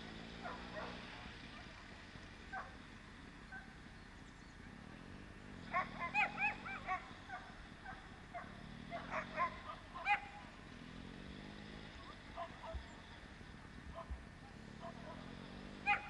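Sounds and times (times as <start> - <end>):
dogs yelping: 0.4 - 1.9, 2.5 - 2.8, 5.5 - 10.5, 11.7 - 13.1, 13.9 - 16.0.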